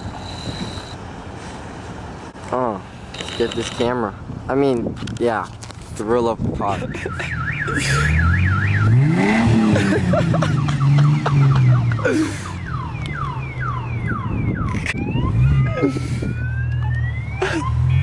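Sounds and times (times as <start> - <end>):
car alarm: 6.8 - 9.4, 10.1 - 18.0.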